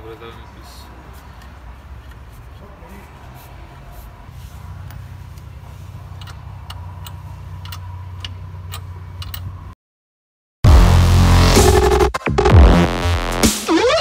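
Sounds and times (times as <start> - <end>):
socket wrench clicking: 6.2 - 9.5.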